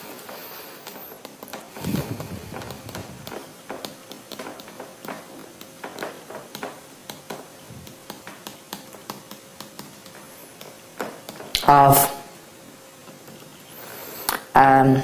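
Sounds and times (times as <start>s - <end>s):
faint steady hum: 0.0s - 15.0s
light sharp clicks and taps: 0.8s - 11.7s.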